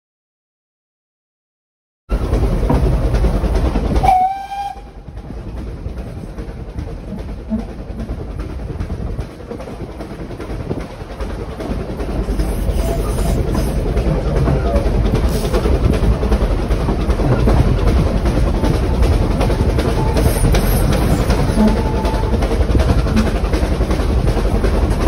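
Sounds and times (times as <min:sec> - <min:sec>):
train running noise: 0:02.1 - 0:25.0
steam locomotive whistle: 0:04.0 - 0:05.0.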